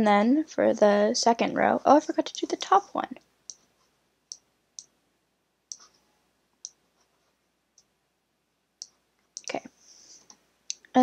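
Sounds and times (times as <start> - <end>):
computer mouse clicks: 5.7 - 5.9.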